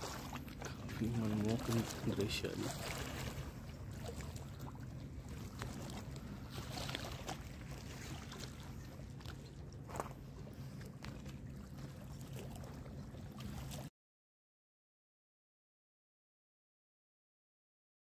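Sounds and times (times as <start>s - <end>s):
water noise: 0.0s - 13.9s.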